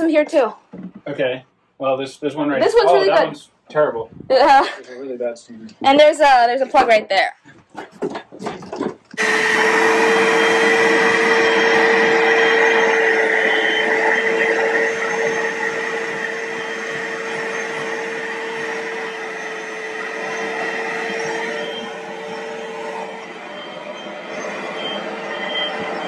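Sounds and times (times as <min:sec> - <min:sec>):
carpet cleaner suction whine: 0:08.7 - 0:26.0.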